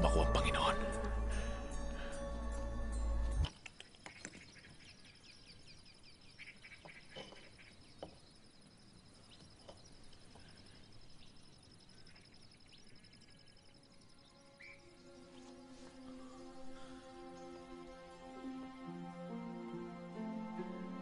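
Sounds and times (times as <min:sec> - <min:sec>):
faint bird chirps: 0:03.5 - 0:18.0
insect trill: 0:04.5 - 0:18.0.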